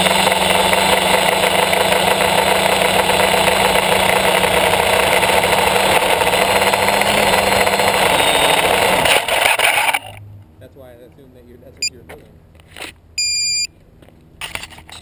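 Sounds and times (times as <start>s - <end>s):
drone motors buzzing whine: 0.0s - 10.3s.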